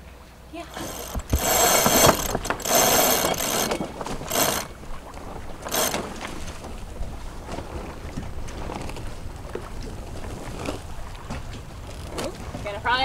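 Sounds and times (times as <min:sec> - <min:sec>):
winch pawls ratcheting: 0:00.7 - 0:06.5.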